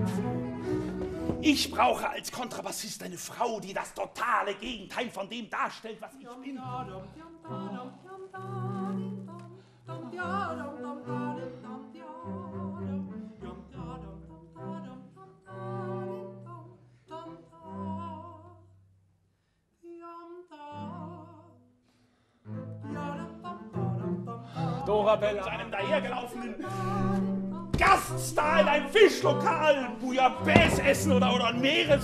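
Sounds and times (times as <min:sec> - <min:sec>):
double bass ensemble playing: 0:00.0 - 0:02.2, 0:22.5 - 0:32.0.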